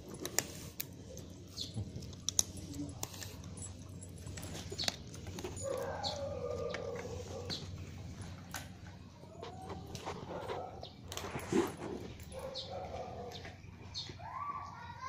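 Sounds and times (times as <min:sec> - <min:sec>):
dog collar chain clinking: 0:01.2 - 0:09.6, 0:10.3 - 0:13.6.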